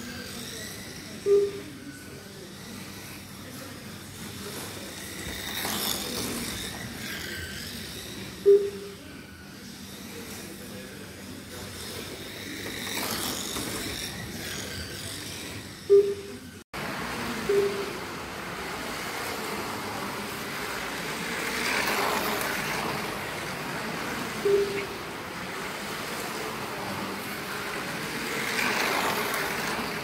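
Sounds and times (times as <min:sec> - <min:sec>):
slot car electric motors whirring: 0:00.0 - 0:30.0
short electronic beeps: 0:01.2 - 0:02.1, 0:08.4 - 0:09.3, 0:15.9 - 0:16.6, 0:17.4 - 0:18.0, 0:24.4 - 0:25.0.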